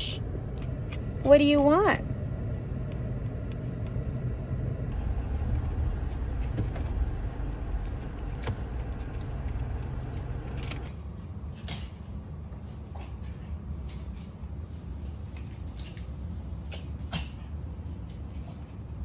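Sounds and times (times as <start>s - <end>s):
car engine rumble: 0.0s - 10.9s.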